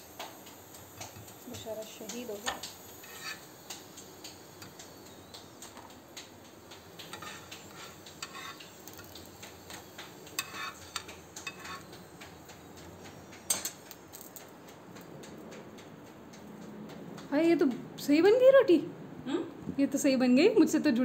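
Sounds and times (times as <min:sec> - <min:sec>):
utensils and cookware clinking: 0:01.0 - 0:03.9, 0:07.0 - 0:14.4.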